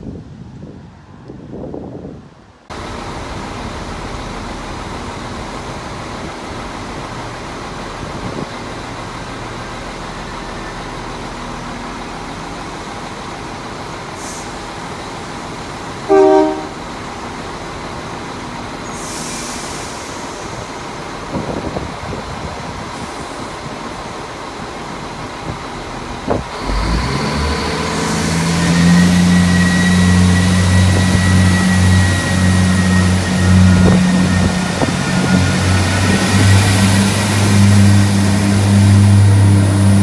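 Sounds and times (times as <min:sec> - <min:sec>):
diesel engines idling: 0:02.7 - 0:40.0
train horn toot: 0:16.1 - 0:16.9
air hiss: 0:18.9 - 0:20.7.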